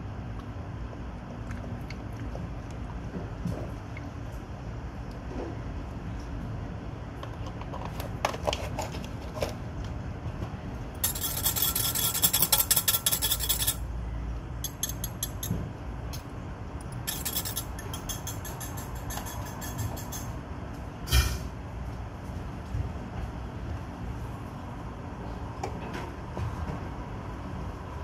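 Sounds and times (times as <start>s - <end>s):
rasping handling noise: 16.9s - 20.3s.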